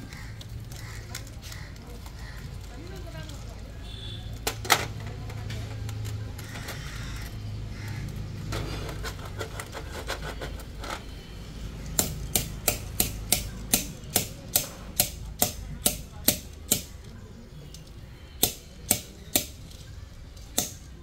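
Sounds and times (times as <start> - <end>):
sharp metallic taps: 11.9 - 17.0, 18.4 - 19.7, 20.5 - 21.0.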